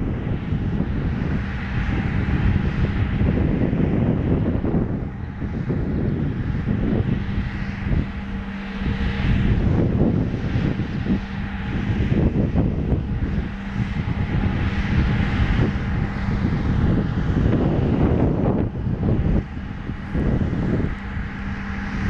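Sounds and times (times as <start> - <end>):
electric locomotive motor hum: 0.0 - 22.0
train rumble: 0.0 - 22.0.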